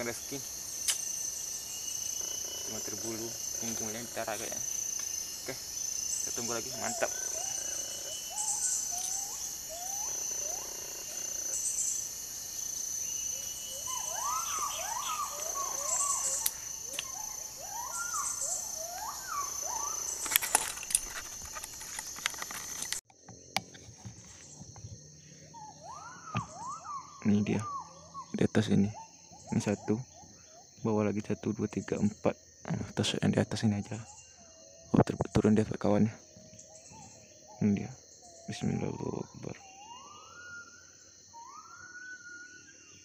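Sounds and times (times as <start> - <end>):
insects droning: 0.0 - 43.0
whistled notes rising and falling: 13.3 - 20.2, 25.6 - 28.3, 39.5 - 42.8.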